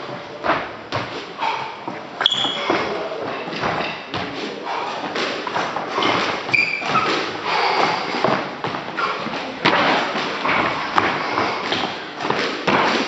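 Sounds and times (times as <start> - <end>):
shoe squeaks: 1.4 - 5.0, 5.9 - 9.3.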